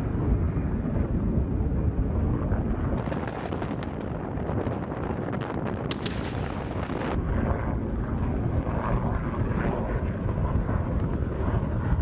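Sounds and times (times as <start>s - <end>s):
explosions cracking and banging: 3.0s - 7.2s.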